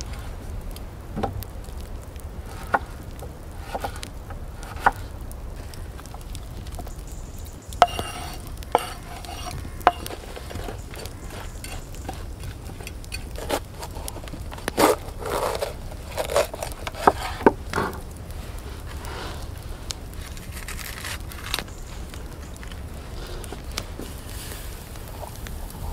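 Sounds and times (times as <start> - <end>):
knife scraping wooden board: 7.8 - 18.0
knife crunching through pepper: 7.9 - 17.4.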